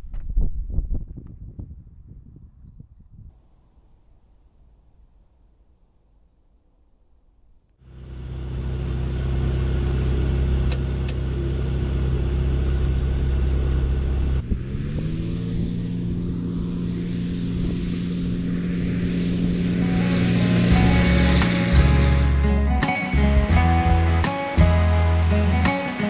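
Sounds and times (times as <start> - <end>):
light aircraft engine and propeller: 7.8 - 26.0
rush of air: 14.4 - 26.0.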